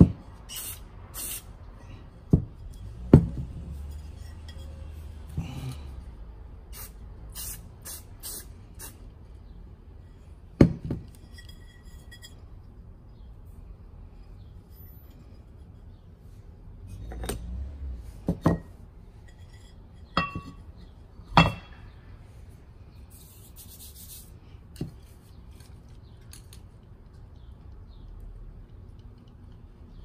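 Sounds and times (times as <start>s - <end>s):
clay pot and saucer clinking: 19.3s - 20.6s.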